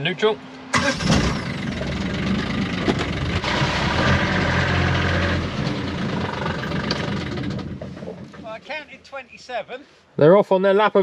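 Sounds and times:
engine idling: 0:00.8 - 0:08.4.

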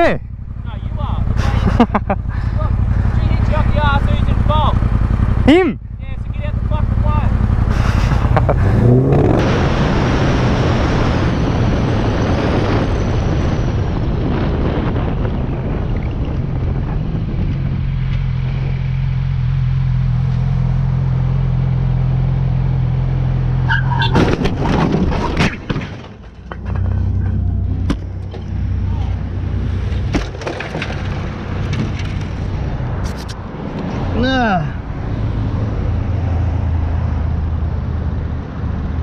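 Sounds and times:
motorcycle engine running: 0:00.0 - 0:09.5
wind rush: 0:07.6 - 0:19.0
motorcycle crash scraping and clattering: 0:24.0 - 0:28.7, 0:29.7 - 0:32.5.

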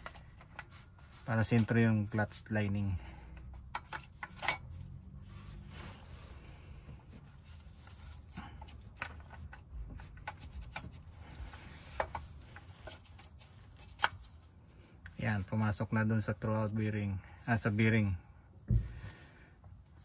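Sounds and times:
light metal clicks and scrapes: 0:00.0 - 0:02.8, 0:03.4 - 0:05.7.

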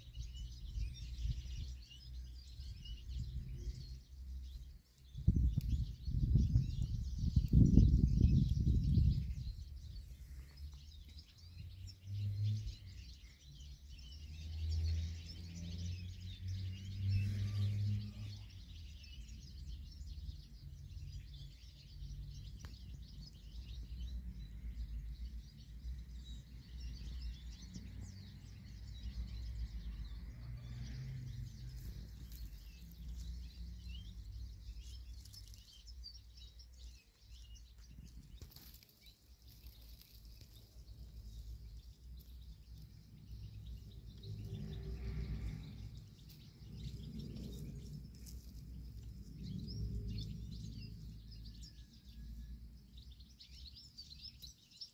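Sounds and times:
faint bird chirps: 0:00.0 - 0:28.2, 0:28.8 - 0:54.9
low uneven rumble: 0:29.8 - 0:51.7.

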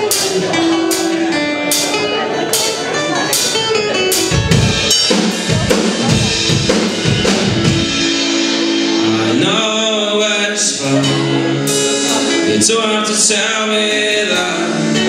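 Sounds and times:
acoustic guitar chords: 0:00.0 - 0:15.0
drum kit playing: 0:00.0 - 0:15.0
man singing: 0:08.2 - 0:15.0.

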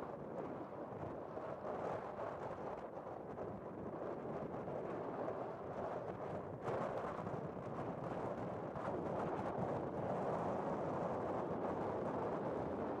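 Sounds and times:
wind noise on microphone: 0:00.0 - 0:13.0.

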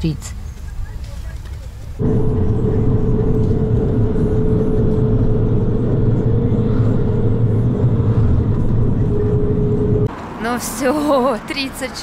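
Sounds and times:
engine and tyre rumble: 0:00.4 - 0:12.0
constant whine: 0:02.0 - 0:10.1.

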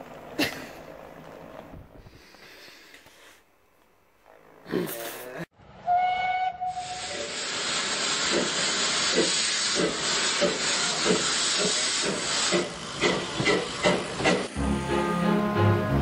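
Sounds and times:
steam locomotive whistle: 0:05.8 - 0:07.6, 0:13.4 - 0:16.0
locomotive exhaust chuffs: 0:06.1 - 0:14.7
steam hissing: 0:06.6 - 0:14.7.

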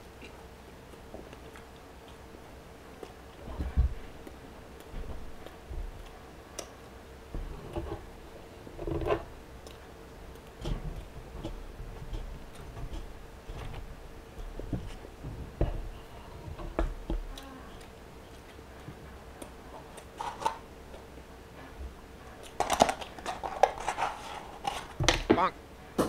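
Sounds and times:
chewing: 0:00.0 - 0:07.0, 0:09.6 - 0:13.8, 0:17.1 - 0:23.2.

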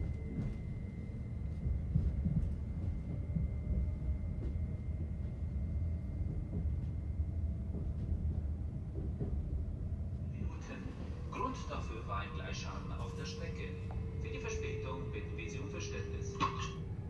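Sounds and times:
train cabin rumble and hum: 0:00.0 - 0:17.0
high-pitched whine: 0:10.3 - 0:17.0.

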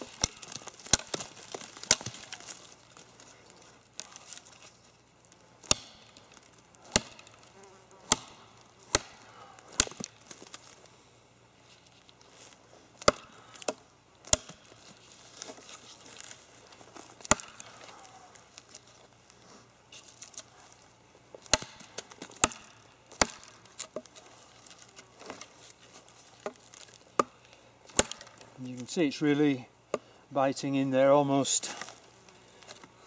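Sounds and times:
knife chopping into wood: 0:05.6 - 0:06.2, 0:06.8 - 0:10.2, 0:13.0 - 0:14.7, 0:17.2 - 0:17.7, 0:21.4 - 0:24.1, 0:27.2 - 0:28.4.

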